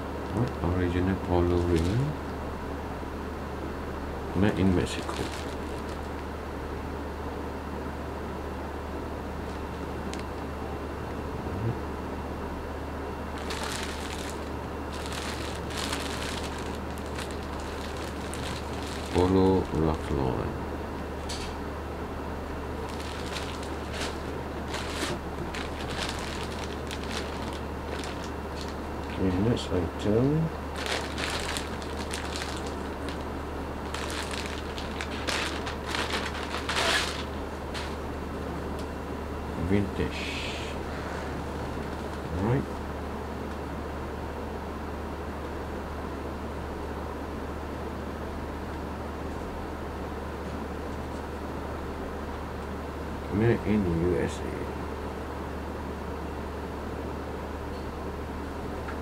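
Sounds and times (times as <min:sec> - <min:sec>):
low hum: 0:00.0 - 0:42.9
plastic bag crinkling: 0:01.5 - 0:02.0, 0:04.6 - 0:06.2, 0:13.3 - 0:19.8, 0:22.8 - 0:29.3, 0:30.6 - 0:38.0.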